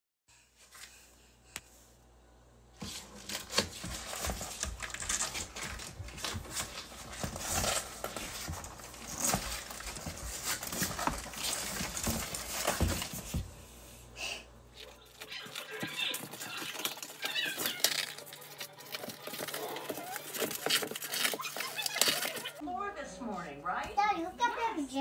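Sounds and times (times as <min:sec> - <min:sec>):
claws scratching on cardboard box: 0:15.0 - 0:22.6.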